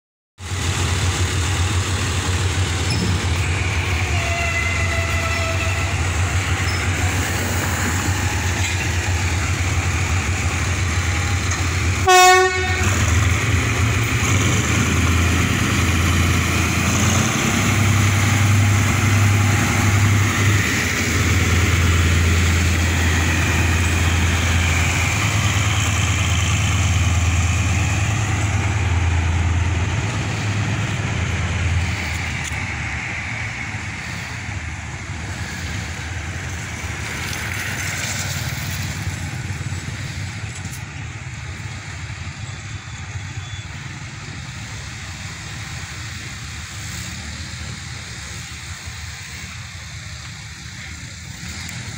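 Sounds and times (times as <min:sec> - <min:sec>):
diesel locomotive engine hum: 0:00.4 - 0:51.9
train horn blast: 0:04.0 - 0:06.1, 0:12.0 - 0:13.2.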